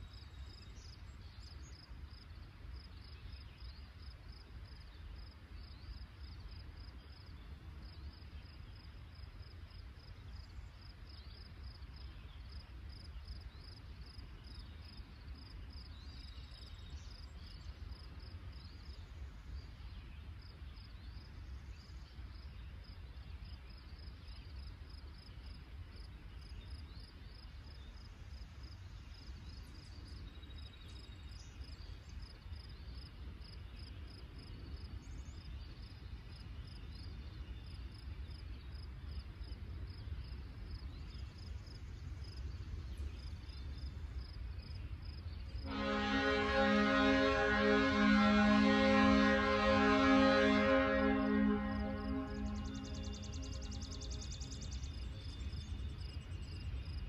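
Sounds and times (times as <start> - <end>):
low steady rumble: 39.6 - 57.0
insects chirping: 39.9 - 57.0
faint higher chirps: 45.6 - 56.6.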